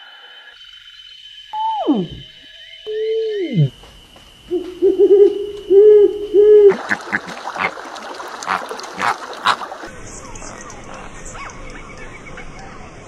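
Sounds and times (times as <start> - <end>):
owl hooting: 1.6 - 3.9, 4.5 - 6.8
water splashing: 4.6 - 11.6.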